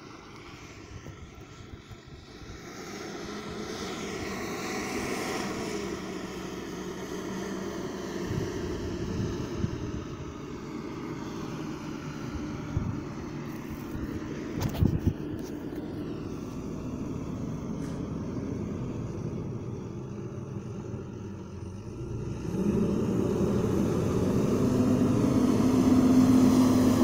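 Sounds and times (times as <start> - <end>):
wheel loader diesel engine: 0.0 - 27.0.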